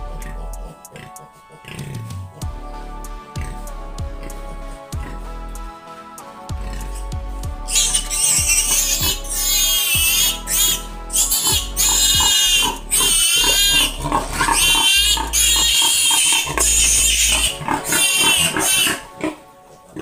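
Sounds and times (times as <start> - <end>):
piglet squealing: 7.7 - 19.4.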